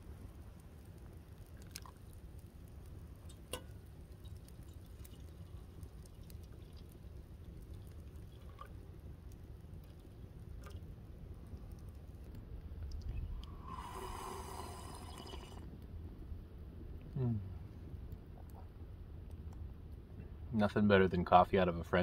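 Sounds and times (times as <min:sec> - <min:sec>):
coffee trickling into metal cup: 0:03.2 - 0:08.9, 0:13.4 - 0:15.7.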